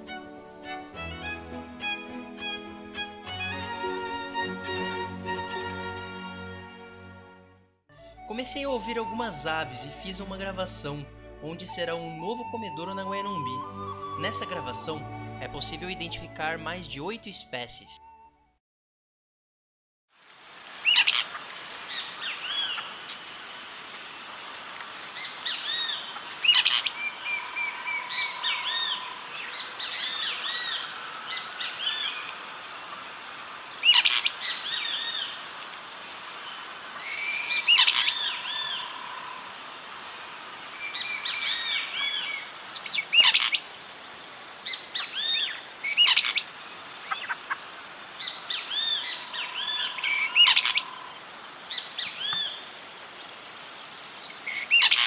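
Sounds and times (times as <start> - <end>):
birds chirping and trilling: 20.8 - 23.2, 24.2 - 52.6, 53.2 - 55.0
loud bird call: 25.6 - 32.3, 37.0 - 39.5
long steady bird whistle: 27.0 - 32.3, 37.0 - 39.4.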